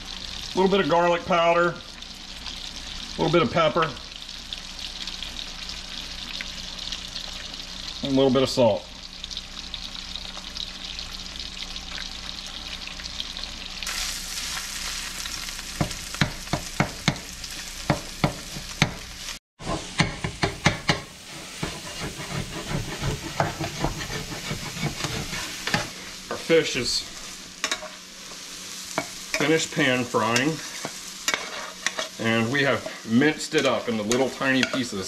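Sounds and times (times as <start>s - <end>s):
fish sizzling in hot oil: 0.0s - 35.0s
metal spatula scraping pan: 21.3s - 26.0s, 30.4s - 34.9s.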